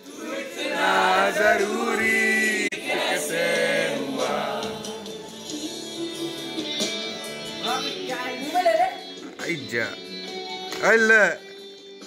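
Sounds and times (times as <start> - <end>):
men singing: 0.0 - 5.3.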